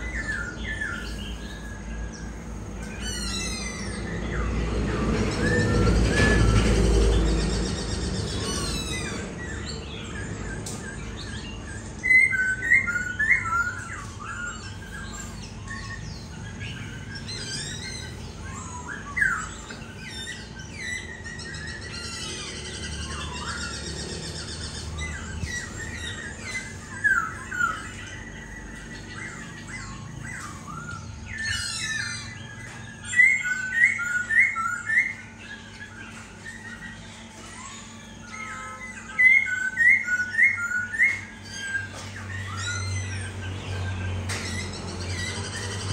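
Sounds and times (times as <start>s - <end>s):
bird singing whistled phrases: 0.0s - 45.9s.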